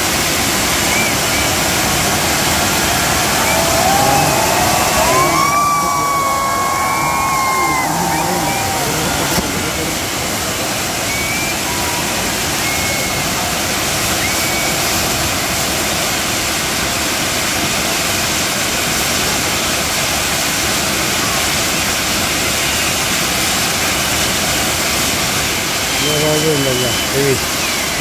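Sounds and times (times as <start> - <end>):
fireworks fountains hissing: 0.0 - 28.0.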